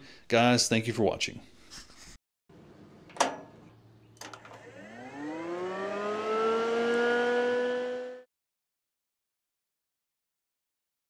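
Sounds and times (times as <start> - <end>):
electric fan motor whining: 4.2 - 8.3.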